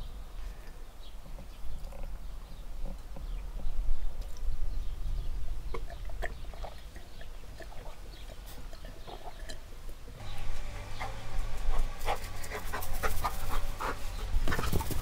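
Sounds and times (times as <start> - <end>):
milk being gulped and swallowed: 5.7 - 9.7.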